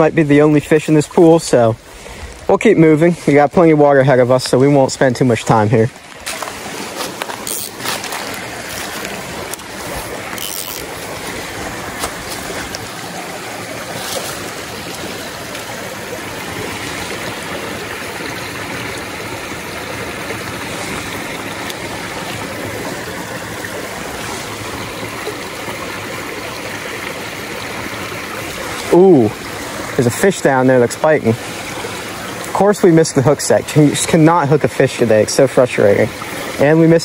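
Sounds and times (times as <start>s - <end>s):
creek water trickling and splashing: 0.0s - 37.0s.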